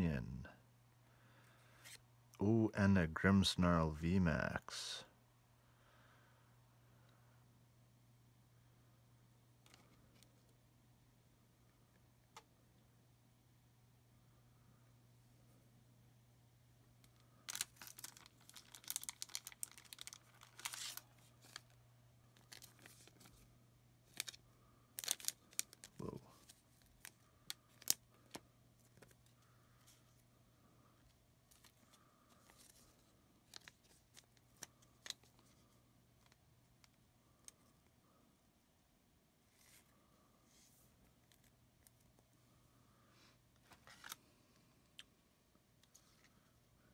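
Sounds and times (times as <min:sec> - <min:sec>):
faint steady hum: 0:00.0 - 0:46.9
packaging torn and crumpled: 0:17.5 - 0:21.8, 0:22.4 - 0:23.4, 0:24.1 - 0:24.4, 0:25.0 - 0:28.4.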